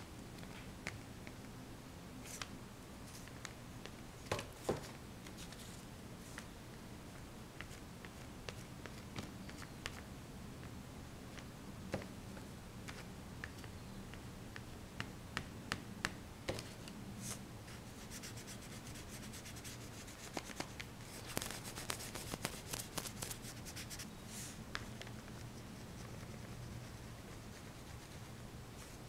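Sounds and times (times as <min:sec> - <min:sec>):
faint low hum: 0:00.0 - 0:29.0
rubbing or scratching: 0:18.0 - 0:24.6.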